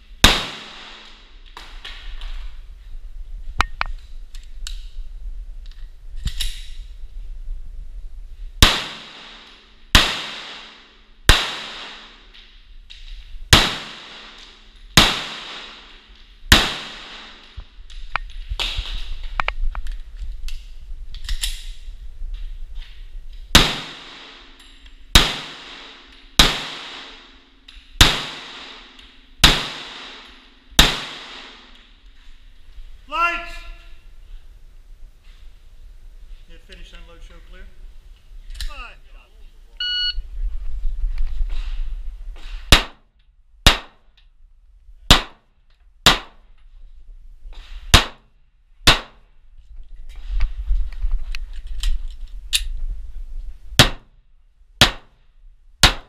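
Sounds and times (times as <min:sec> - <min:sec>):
pistol shots echoing: 0:00.2 - 0:01.2, 0:08.6 - 0:12.2, 0:13.5 - 0:17.5, 0:23.6 - 0:24.4, 0:25.1 - 0:27.3, 0:28.0 - 0:31.8, 0:42.7 - 0:43.0, 0:43.6 - 0:44.0, 0:45.1 - 0:45.4, 0:46.0 - 0:46.4, 0:47.9 - 0:48.3, 0:48.9 - 0:49.2, 0:53.8 - 0:54.1, 0:54.8 - 0:55.1.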